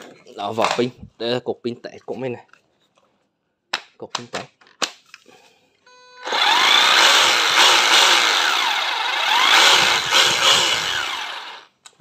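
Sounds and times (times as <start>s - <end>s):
cordless drill motor whine: 6.2s - 11.7s.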